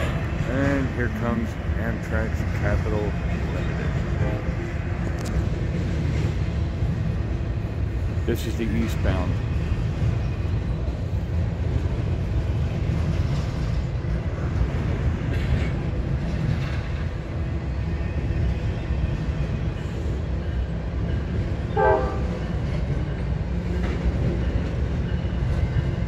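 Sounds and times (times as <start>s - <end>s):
rail clicks: 0.0s - 26.0s
train wheels rumbling on rail: 0.0s - 26.0s
train horn toot: 21.7s - 22.4s.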